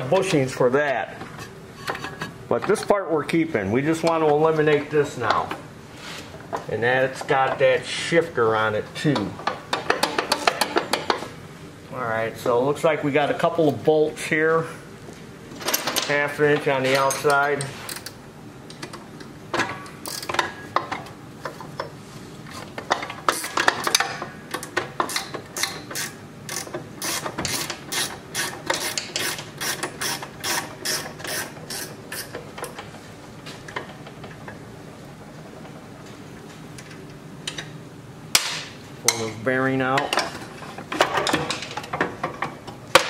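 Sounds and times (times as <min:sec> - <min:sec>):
ratchet wrench clicking: 0:20.0 - 0:20.4, 0:24.6 - 0:32.3.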